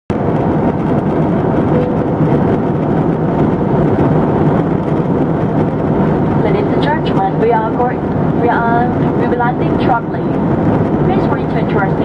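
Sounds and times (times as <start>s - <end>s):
jet airliner cabin noise: 0.1s - 12.0s.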